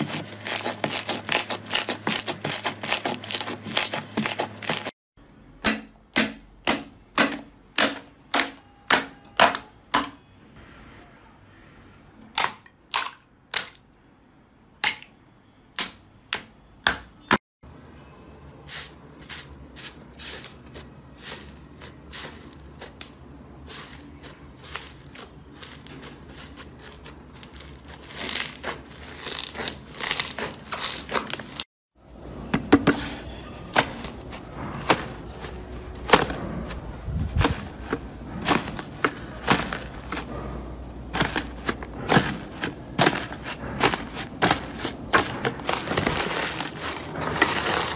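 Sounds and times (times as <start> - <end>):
slime crackling and squishing: 0.0 - 4.9, 20.3 - 31.7, 40.9 - 47.9.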